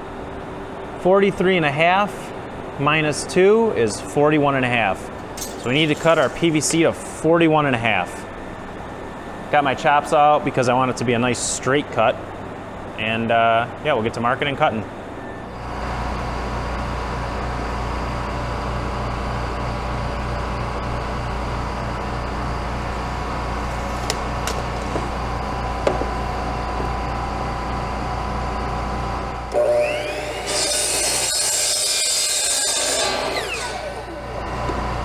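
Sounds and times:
miter saw motor whining: 29.2s - 35.0s
saw blade cutting plastic pipe: 29.5s - 34.2s.

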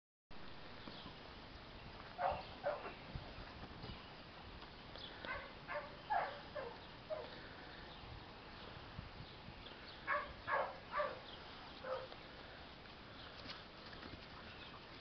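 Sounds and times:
dog yipping: 2.2s - 2.9s.

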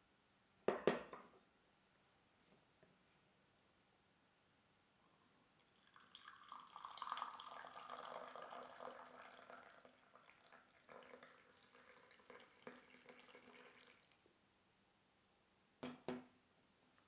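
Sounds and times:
liquid pouring into cup: 5.6s - 14.2s
drips: 5.8s - 14.2s.

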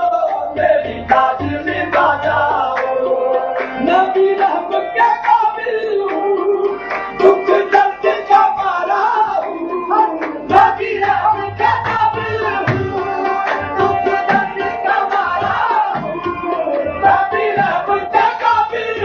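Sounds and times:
harmonium tones: 0.0s - 19.0s
tabla drumming: 0.0s - 19.0s
hand-clapping: 0.2s - 8.7s, 9.4s - 10.9s, 11.8s - 16.4s.

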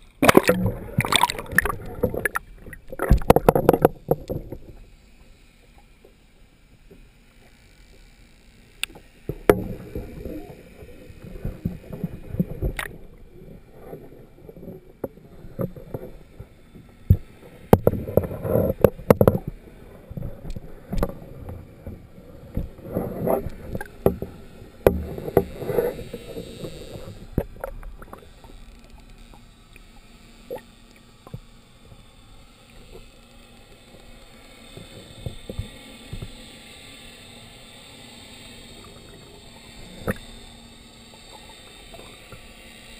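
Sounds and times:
muffled water sloshing: 0.0s - 4.9s
sharp clicks and thumps: 0.2s - 4.7s, 17.1s - 19.5s.

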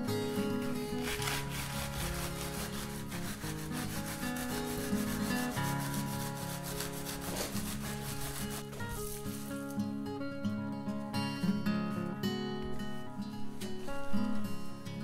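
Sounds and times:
guitar music: 0.0s - 15.0s
trowel scraping wet earthen mix: 0.6s - 9.6s.

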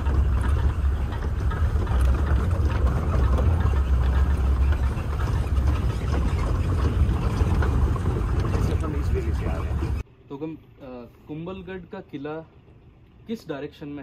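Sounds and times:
jeep engine running: 0.0s - 10.0s
rattle of vehicle on rocky track: 0.0s - 10.0s.

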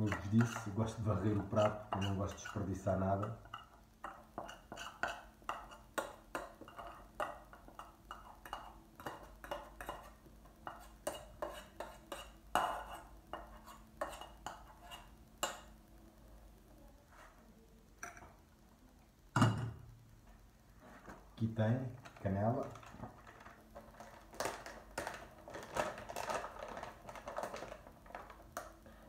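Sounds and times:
utensil scraping metal saucepan: 0.0s - 15.6s.

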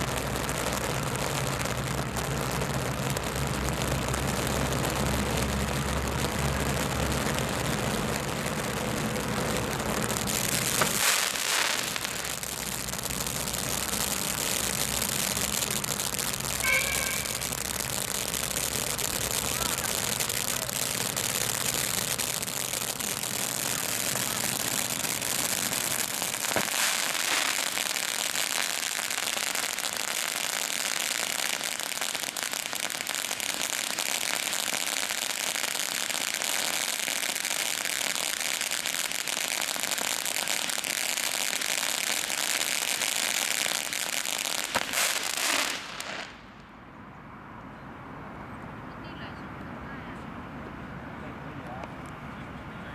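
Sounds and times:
firework fountain hissing and crackling: 0.0s - 46.7s
firework pops: 9.2s - 46.7s.

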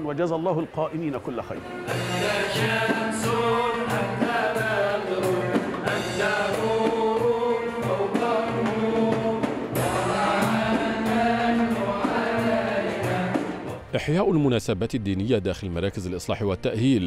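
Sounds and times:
men singing together: 1.9s - 13.8s
frame drum beat: 1.9s - 13.9s.

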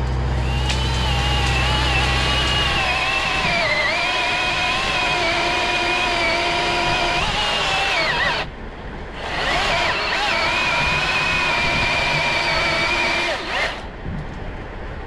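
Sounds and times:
battery chainsaw whining: 0.4s - 14.0s.

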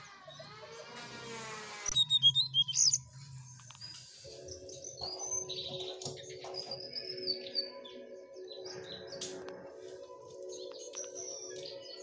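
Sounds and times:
songbird chirping: 0.2s - 12.0s
high bird whistle: 1.9s - 3.0s.

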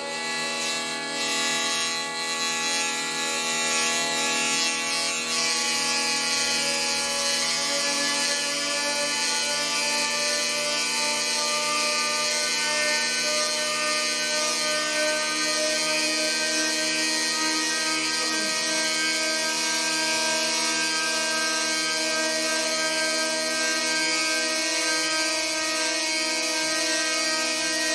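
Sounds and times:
hurdy-gurdy drone: 13.2s - 27.9s.

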